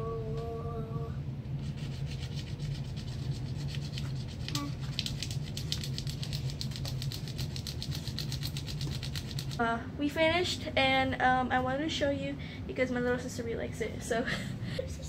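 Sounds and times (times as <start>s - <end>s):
stylus scratching paper: 1.6s - 9.6s.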